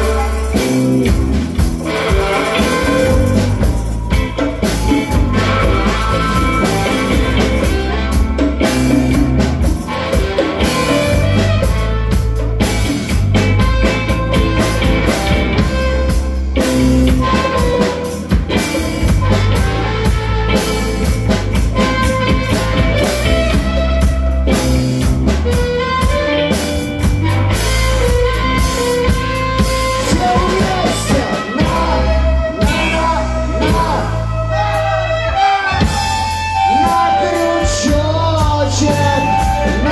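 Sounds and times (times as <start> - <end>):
rock band playing: 0.0 - 39.9
harmonica: 25.4 - 39.9.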